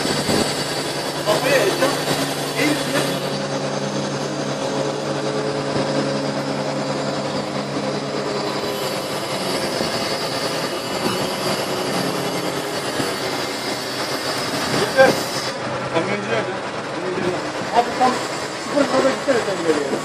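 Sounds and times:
truck engine drone: 0:00.0 - 0:20.0
hydraulic crane hiss: 0:04.9 - 0:15.7.

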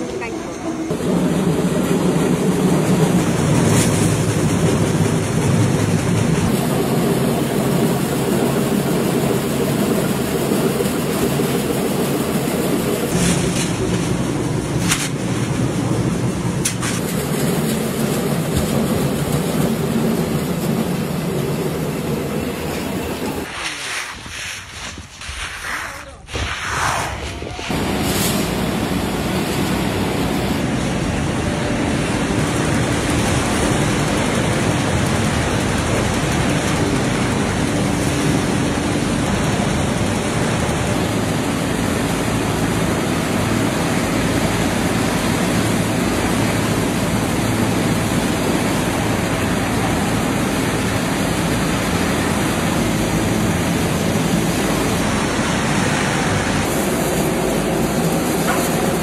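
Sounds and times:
machinery rattling: 0:27.6 - 0:45.0.

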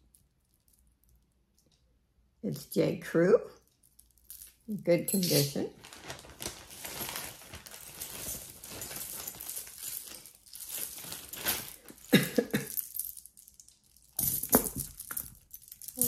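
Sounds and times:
metal chain links clinking: 0:03.7 - 0:05.8, 0:07.7 - 0:16.0
plastic bags crinkling: 0:05.2 - 0:16.0.

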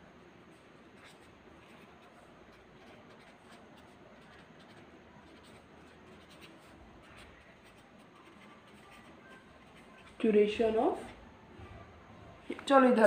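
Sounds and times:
pen scratching on paper: 0:00.5 - 0:10.3.

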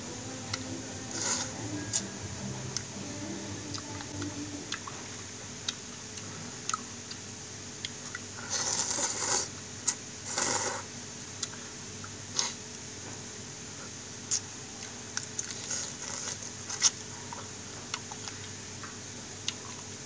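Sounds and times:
person slurping noodles: 0:08.5 - 0:09.5, 0:10.3 - 0:10.9.

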